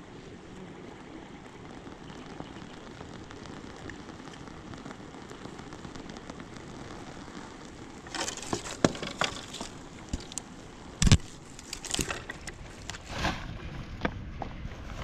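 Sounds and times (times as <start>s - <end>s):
steady rushing noise: 0.0s - 15.0s
crunches cracks and knocks: 8.0s - 13.4s.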